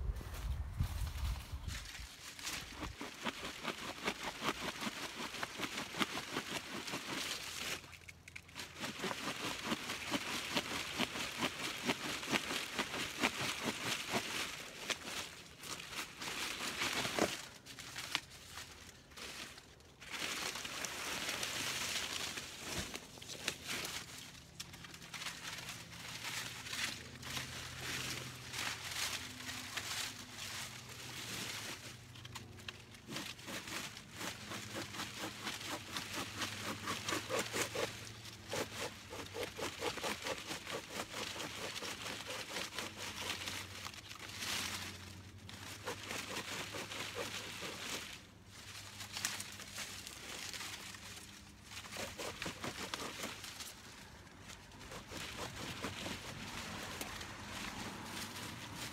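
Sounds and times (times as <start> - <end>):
dry leaves crackling and rustling: 0.0 - 58.9
rhythmic scraping strokes: 32.7 - 43.6.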